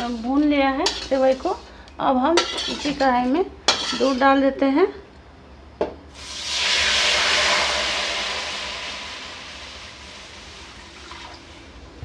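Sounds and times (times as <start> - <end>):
milk sizzling in hot pan: 6.1 - 12.0.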